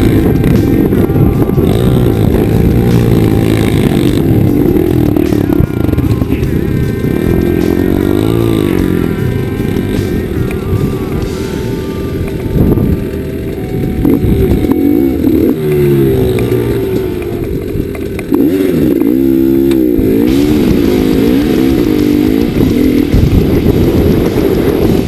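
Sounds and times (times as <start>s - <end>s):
dirt bike engine revving: 0.0s - 25.0s.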